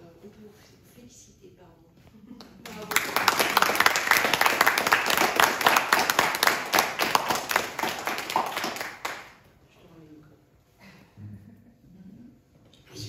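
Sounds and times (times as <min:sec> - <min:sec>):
small group applauding: 0:02.4 - 0:09.5.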